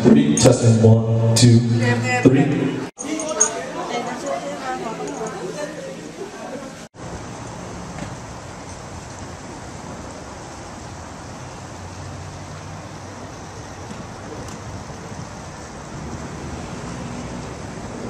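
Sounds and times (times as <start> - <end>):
traffic rumble: 6.6 - 18.0.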